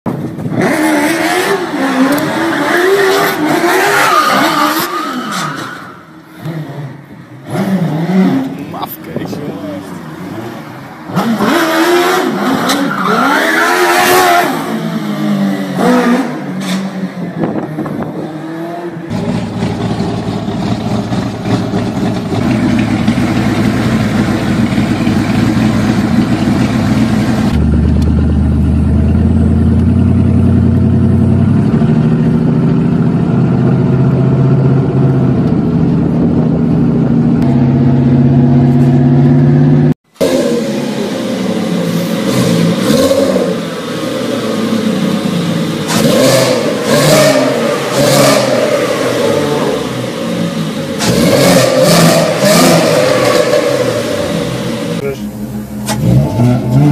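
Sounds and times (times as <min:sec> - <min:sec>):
small car engine revving hard: 0:00.4 - 0:05.2, 0:06.4 - 0:08.6, 0:11.1 - 0:16.6, 0:37.6 - 0:55.0, 0:55.8 - 0:56.9
deep car engine running: 0:19.1 - 0:39.9.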